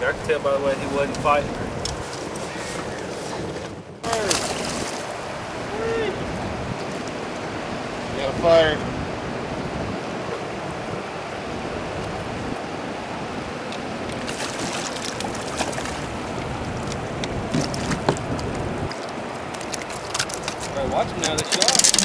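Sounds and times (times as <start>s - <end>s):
wind: 0.0s - 22.0s
fish splashing at surface: 4.0s - 5.1s, 14.2s - 16.1s
river water rushing: 9.0s - 20.8s.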